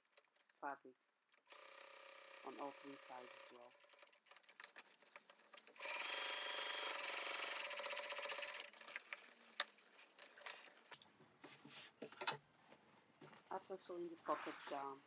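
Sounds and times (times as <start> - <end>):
sewing machine rattling: 1.4 - 10.8
fabric rustling: 9.3 - 15.0.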